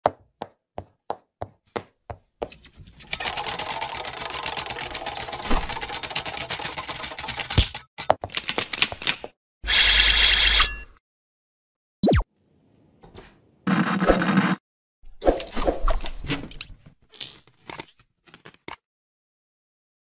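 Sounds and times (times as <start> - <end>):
rapid mechanical clatter: 3.0 - 7.9.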